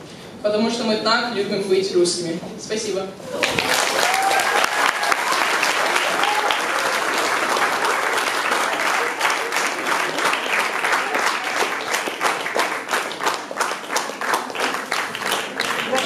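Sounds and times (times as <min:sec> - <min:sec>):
audience applauding: 0:03.3 - 0:16.0.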